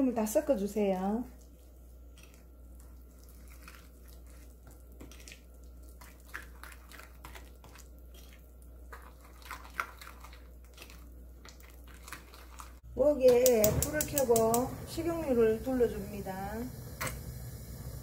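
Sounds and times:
wet paste squishing: 1.2s - 12.9s.

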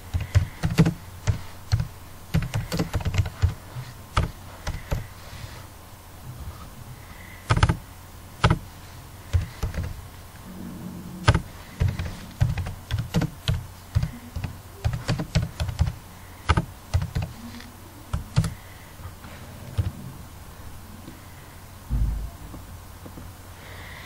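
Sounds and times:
typing on computer keyboard: 0.1s - 3.6s, 7.5s - 7.8s, 11.3s - 17.3s, 18.1s - 18.6s.

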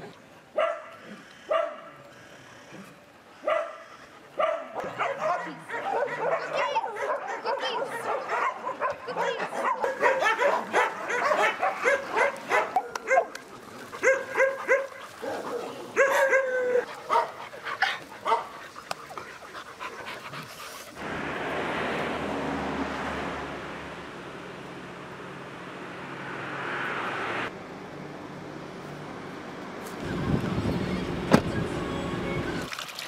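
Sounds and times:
dogs barking and yipping: 0.5s - 2.0s, 3.3s - 21.0s.

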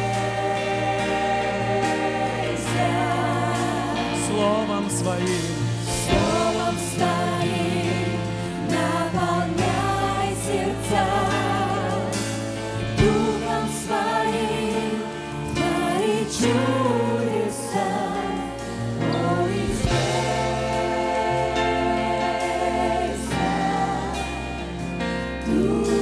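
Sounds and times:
lead singer singing: 0.0s - 12.2s
backing vocalists singing: 0.0s - 26.0s
keyboard: 0.0s - 26.0s.

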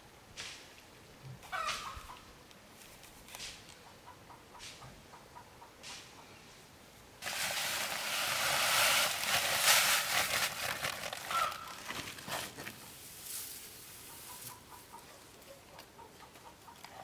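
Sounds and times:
dry rustling and crackling: 7.2s - 14.6s.

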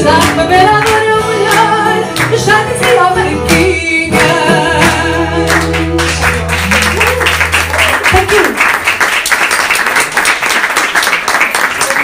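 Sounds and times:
woman singing: 0.0s - 6.3s
plucked guitars: 0.0s - 8.3s.

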